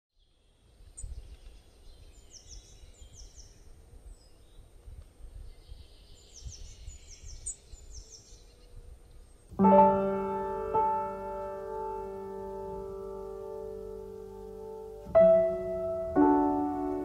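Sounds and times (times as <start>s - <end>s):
birds chirping: 0.2s - 17.0s.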